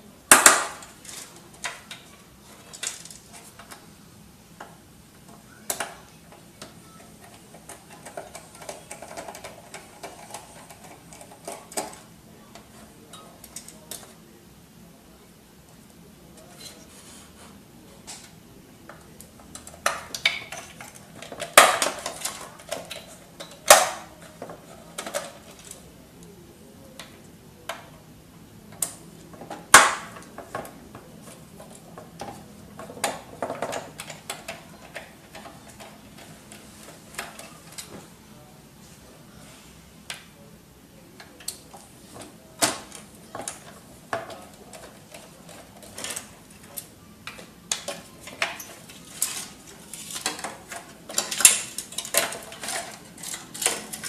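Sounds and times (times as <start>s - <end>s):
printer parts clicking and clattering: 0.3s - 3.8s, 4.6s - 14.2s, 18.0s - 25.9s, 28.7s - 38.1s, 41.2s - 54.0s.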